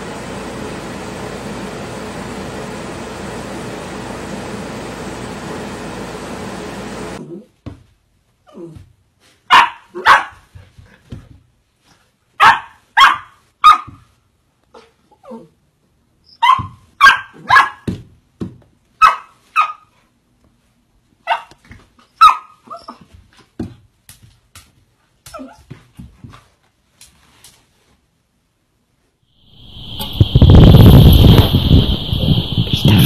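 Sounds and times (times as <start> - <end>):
puppy yapping barks: 9.5 - 10.5, 12.4 - 14.0, 16.4 - 17.9, 19.0 - 19.9, 21.2 - 21.6, 22.2 - 23.0.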